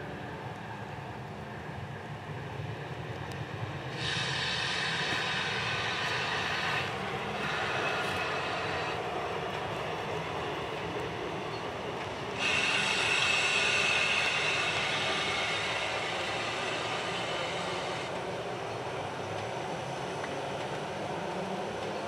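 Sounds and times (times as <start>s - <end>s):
steam locomotive rumble: 0.0s - 22.0s
loud steam hiss: 3.8s - 9.1s, 12.3s - 18.1s.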